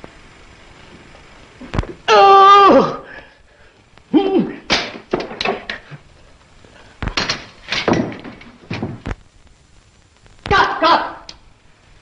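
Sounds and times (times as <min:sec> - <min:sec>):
person shouting: 0:02.1 - 0:03.1, 0:04.1 - 0:04.7, 0:10.5 - 0:11.3
short cry: 0:02.1 - 0:03.2, 0:04.1 - 0:04.7, 0:10.5 - 0:11.3.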